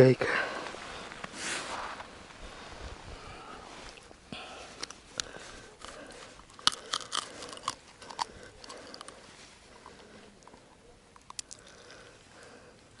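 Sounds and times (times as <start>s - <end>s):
small clicks and crunches: 4.7s - 12.9s.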